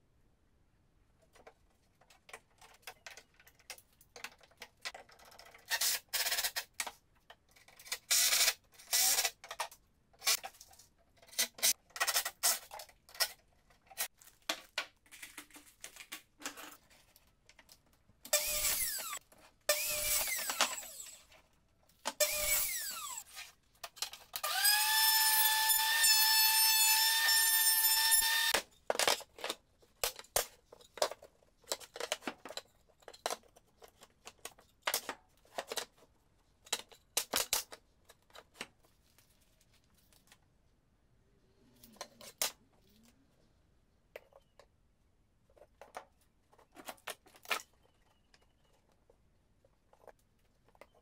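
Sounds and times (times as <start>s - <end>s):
power drill whining: 18.3s - 21.2s, 22.2s - 23.2s, 24.4s - 28.6s.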